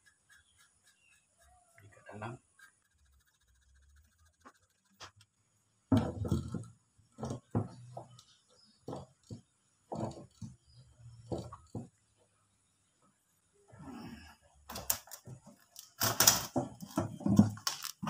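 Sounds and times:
hard plastic knocks and clatter: 5.9s - 10.6s, 11.2s - 12.0s, 14.7s - 18.0s.

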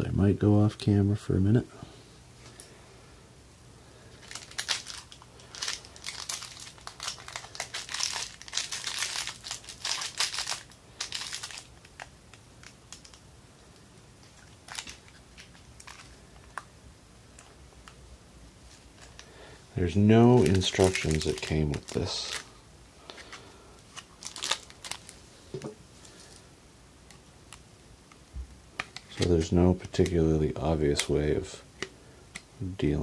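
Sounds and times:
plastic packaging crinkling: 4.2s - 16.7s, 18.6s - 26.4s, 28.8s - 30.2s.

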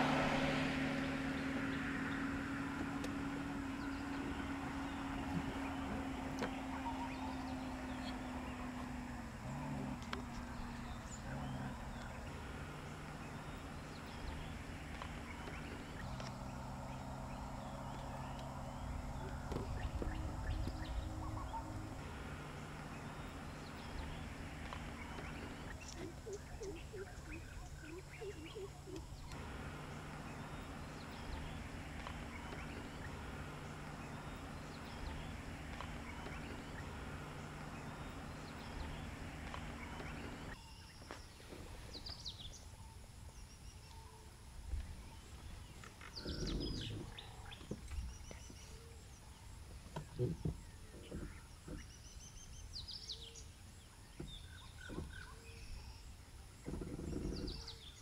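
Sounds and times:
steady low hum: 0.0s - 52.8s
birds chirping: 0.0s - 58.0s.

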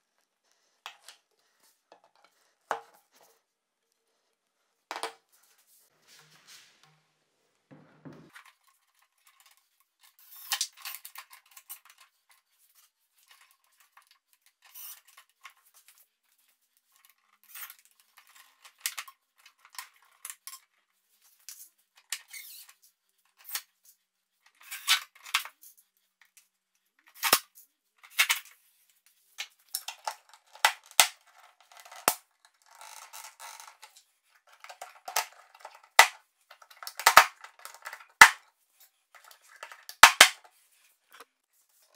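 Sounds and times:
plastic pipes clicking and scraping: 0.5s - 3.4s, 7.7s - 41.9s
pipes snapping into plastic clips: 34.7s - 36.2s, 36.8s - 38.4s, 39.9s - 40.4s.

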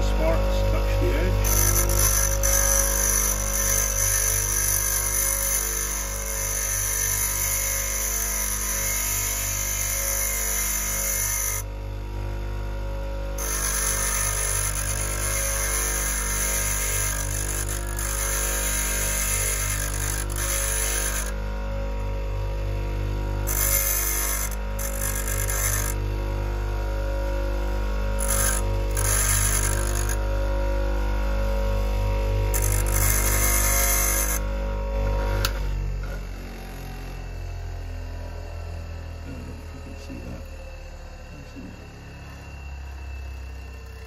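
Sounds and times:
steel hissing on grinding wheel: 0.0s - 11.7s, 13.4s - 21.4s, 23.5s - 26.0s, 28.2s - 30.2s, 32.5s - 34.4s
bench grinder motor hum: 0.0s - 44.0s.

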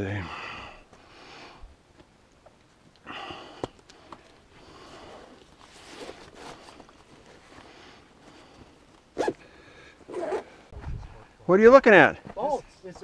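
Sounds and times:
person breathing hard: 3.0s - 5.4s, 9.4s - 10.0s.

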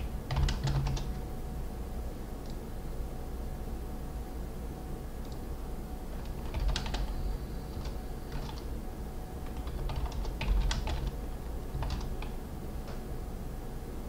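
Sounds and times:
computer keyboard typing: 0.0s - 1.2s, 6.2s - 8.7s, 9.4s - 12.4s
low steady hum: 0.0s - 14.0s.

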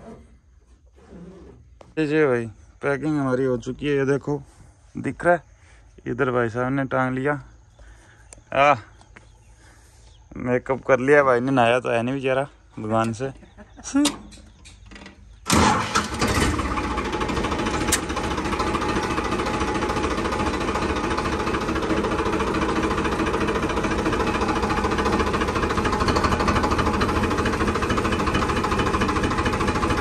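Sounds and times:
diesel engine starting and running: 12.8s - 30.0s.

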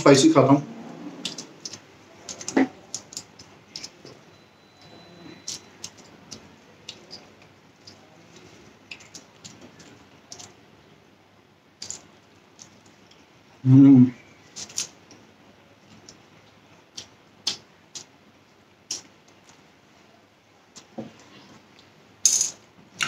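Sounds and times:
chewing clicks and smacks: 16.0s - 18.1s, 18.9s - 19.6s.

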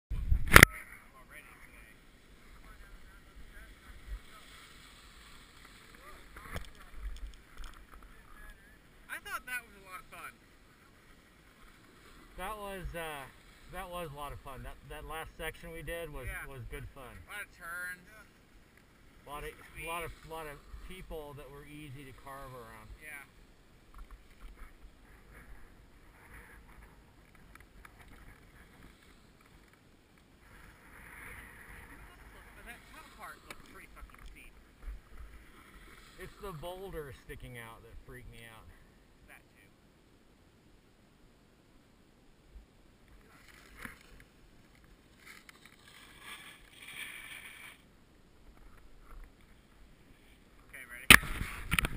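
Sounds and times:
wind on microphone: 0.1s - 0.6s
skis scraping on packed snow: 1.3s - 18.4s, 19.2s - 23.3s, 30.4s - 34.1s, 35.0s - 37.8s, 45.0s - 47.9s.

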